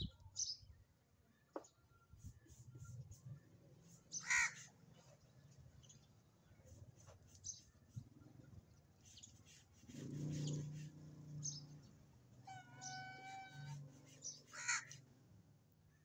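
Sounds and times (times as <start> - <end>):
animal calls: 12.5 - 15.0.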